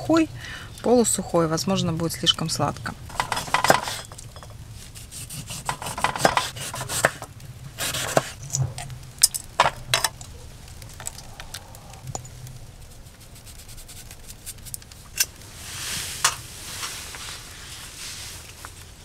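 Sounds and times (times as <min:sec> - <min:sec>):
knife and dishes clicking: 0:03.1 - 0:04.5, 0:05.5 - 0:08.4
utensils scraping and rubbing: 0:03.1 - 0:08.7.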